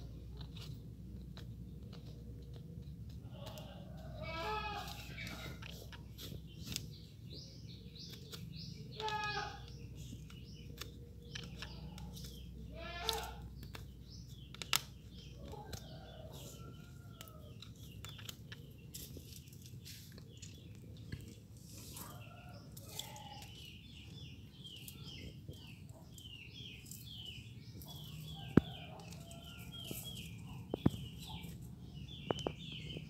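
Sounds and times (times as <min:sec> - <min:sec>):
birds chirping: 0:00.0 - 0:33.0
goat bleating: 0:04.2 - 0:05.3, 0:08.9 - 0:09.7, 0:12.7 - 0:13.4.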